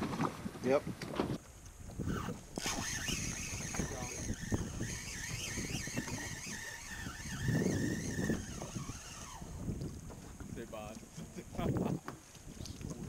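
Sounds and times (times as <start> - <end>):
rush of wind and water: 0.0 - 13.0
fishing reel whine: 2.0 - 9.8.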